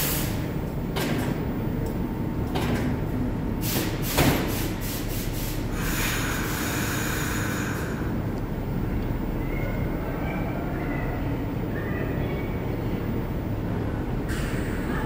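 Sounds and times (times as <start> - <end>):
hiss: 0.0 - 0.4, 3.6 - 8.1
subway train equipment humming: 0.0 - 15.0.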